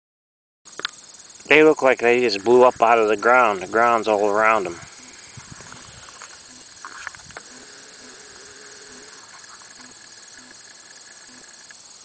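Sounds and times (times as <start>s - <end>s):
high-pitched insect trilling: 0.7s - 12.0s.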